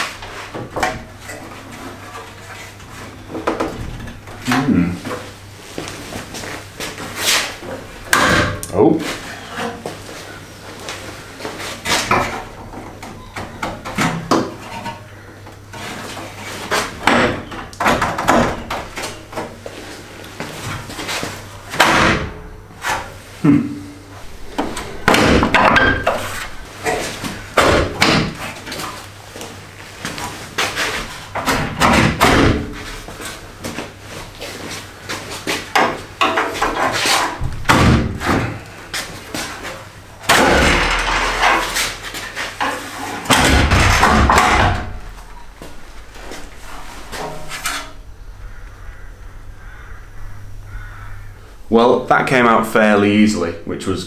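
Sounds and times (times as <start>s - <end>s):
metal clunks and bangs: 8.1s - 8.7s, 15.7s - 19.6s, 21.7s - 23.1s, 24.3s - 28.8s, 30.7s - 33.0s, 35.7s - 38.6s, 40.2s - 48.0s
metal scraping: 24.2s - 27.6s, 40.4s - 51.2s
metal panel clunking and rattling: 40.3s - 48.0s.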